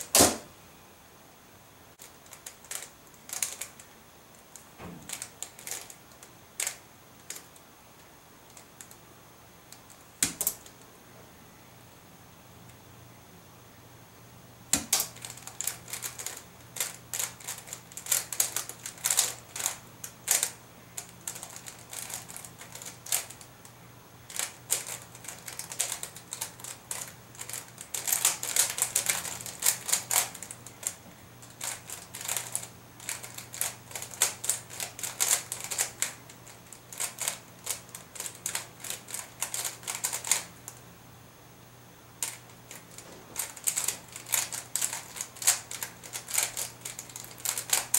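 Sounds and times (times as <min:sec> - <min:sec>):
plastic puzzle clicking and clacking: 0:02.0 - 0:03.9, 0:04.5 - 0:07.5, 0:14.8 - 0:23.5, 0:24.3 - 0:40.5, 0:42.2 - 0:47.9.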